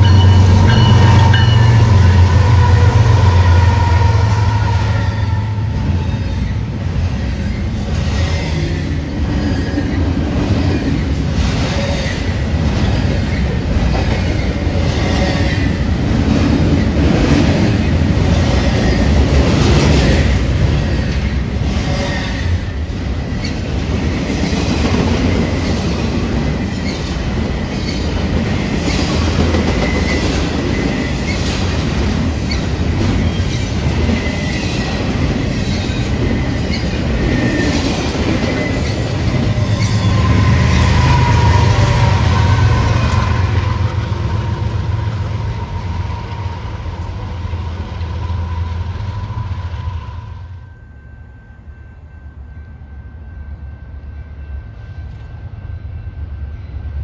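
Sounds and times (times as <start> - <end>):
high wheel squeal: 0.0 - 10.0, 32.4 - 51.3
train rumbling past: 0.0 - 57.0.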